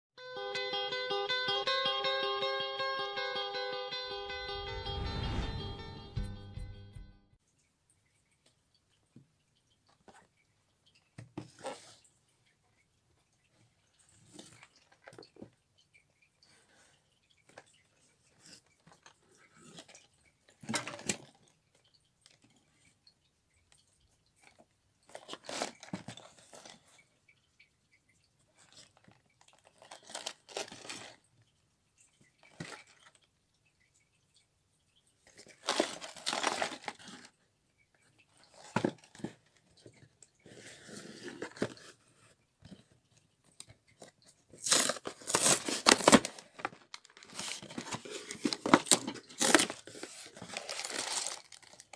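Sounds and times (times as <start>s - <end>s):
cardboard tearing and crinkling: 35.6s - 37.0s, 44.6s - 51.9s.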